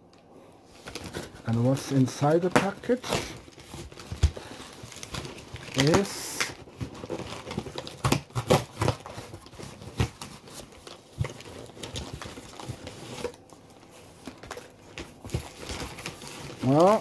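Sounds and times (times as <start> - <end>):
parcel rustling: 8.6 - 17.0.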